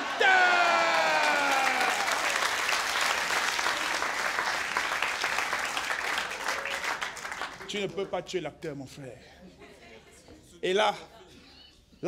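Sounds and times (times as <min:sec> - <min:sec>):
man shouting: 0:00.0 - 0:02.1
audience applauding: 0:00.0 - 0:08.0.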